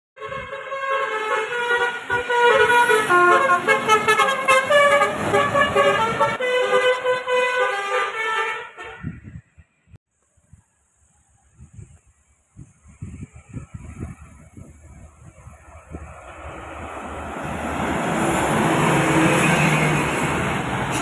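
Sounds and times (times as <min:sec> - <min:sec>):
tuned air horns playing a tune: 0:00.2 - 0:09.4.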